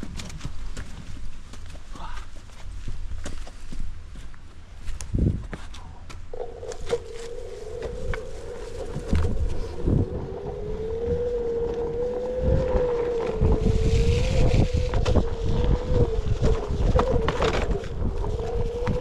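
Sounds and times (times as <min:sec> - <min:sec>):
wind rumble on microphone: 0:02.7 - 0:19.0
electric motor whining: 0:06.3 - 0:19.0.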